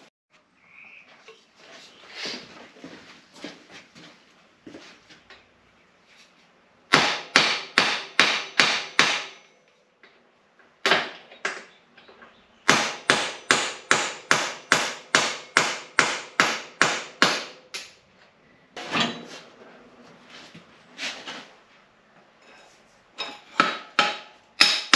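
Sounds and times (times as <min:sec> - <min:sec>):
hammer striking metal: 0:06.9 - 0:09.6, 0:12.7 - 0:18.0, 0:23.2 - 0:24.9.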